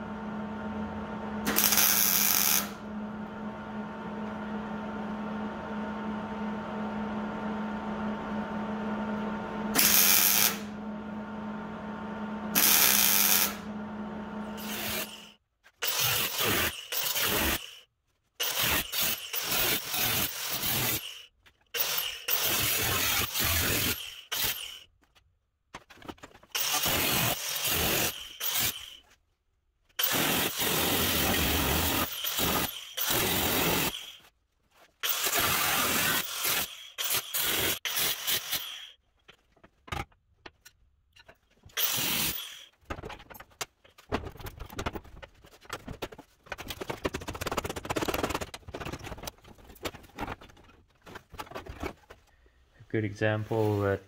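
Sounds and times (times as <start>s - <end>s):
power tool cutting sheet metal: 1.4s - 2.8s, 9.7s - 10.8s, 12.5s - 13.7s, 14.4s - 24.9s, 26.6s - 29.0s, 30.0s - 34.2s, 35.0s - 39.0s, 41.8s - 42.7s.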